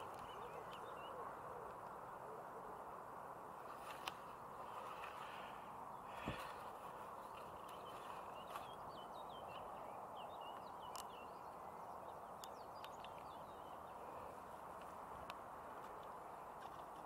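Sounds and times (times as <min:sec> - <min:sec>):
small bird chirping: 0:00.0 - 0:01.4, 0:05.9 - 0:14.3.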